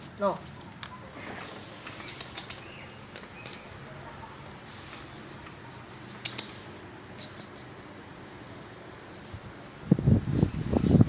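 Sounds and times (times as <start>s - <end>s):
chew bone clicking on tile: 6.2s - 6.5s.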